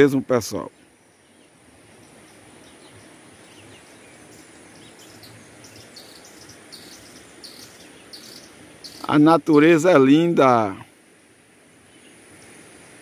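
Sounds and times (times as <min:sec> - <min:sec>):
faint steady hiss: 0:00.0 - 0:13.0
small birds chirping: 0:00.0 - 0:13.0
high-pitched insect drone: 0:01.9 - 0:10.3.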